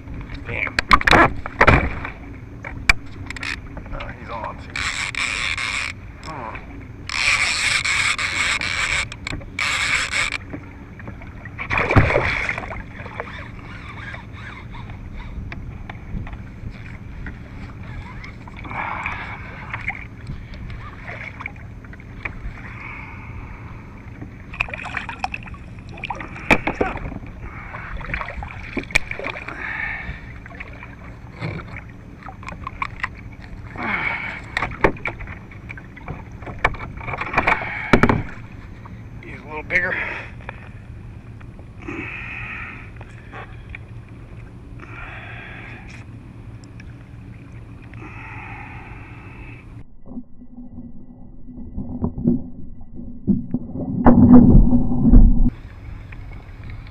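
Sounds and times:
small waves slapping hull: 0.0 - 50.2
wind on water: 0.0 - 56.9
fishing reel drag buzzing: 3.1 - 10.5, 12.9 - 15.5
loud splash: 11.7 - 12.6.

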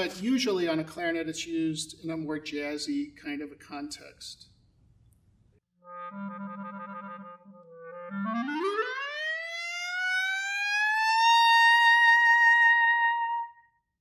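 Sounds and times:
clarinet glissando: 5.8 - 13.6.

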